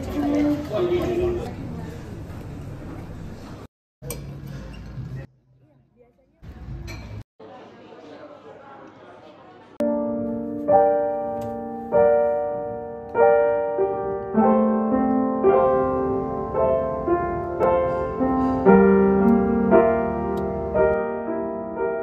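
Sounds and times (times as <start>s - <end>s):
slow piano music: 9.8s - 22.0s.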